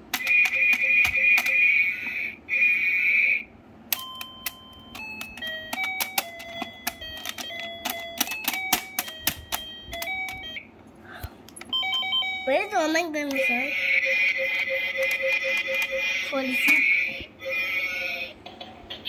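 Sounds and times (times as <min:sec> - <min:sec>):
toy keyboard beeping notes: 0:00.1 - 0:01.8, 0:03.9 - 0:10.6, 0:11.6 - 0:18.3
shrill electronic ringing: 0:11.7 - 0:18.2.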